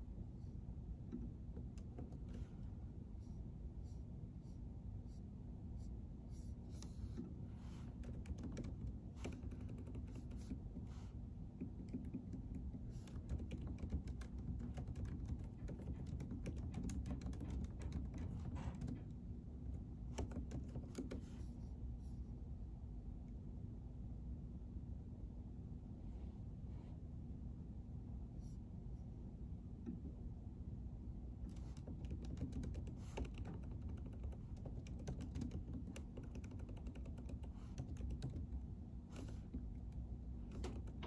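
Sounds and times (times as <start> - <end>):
low room hum: 0.0 - 41.0
keyboard typing: 7.9 - 10.6, 11.6 - 21.4, 31.5 - 41.0.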